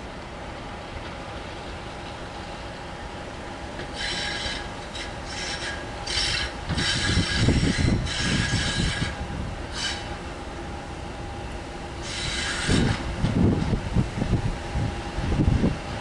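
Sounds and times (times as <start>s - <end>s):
diesel locomotive engine rumble: 0.0s - 16.0s
wheels squealing on rails: 3.8s - 10.3s, 12.0s - 13.7s.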